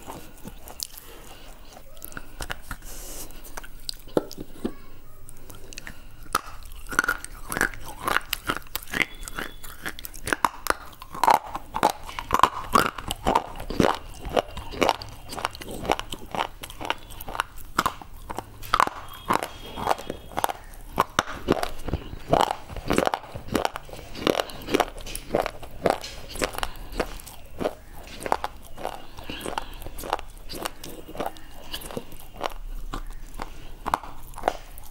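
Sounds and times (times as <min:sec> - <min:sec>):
crunchy biting and chewing: 0:00.0 - 0:34.9.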